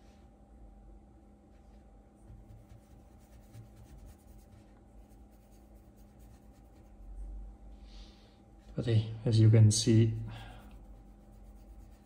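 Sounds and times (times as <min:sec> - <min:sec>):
low steady hum: 0:00.0 - 0:12.0
paintbrush rubbing on paper: 0:02.3 - 0:07.2, 0:09.8 - 0:12.0.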